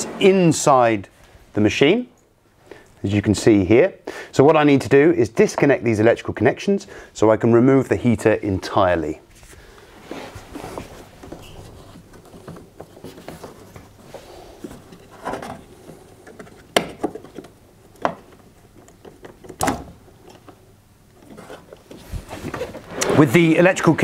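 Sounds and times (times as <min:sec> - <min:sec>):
hands handling wiring connectors: 0:10.4 - 0:23.1.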